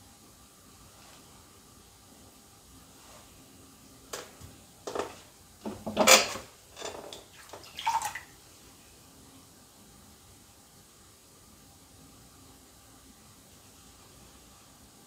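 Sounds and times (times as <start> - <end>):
water splashing in a bowl: 7.1 - 8.4.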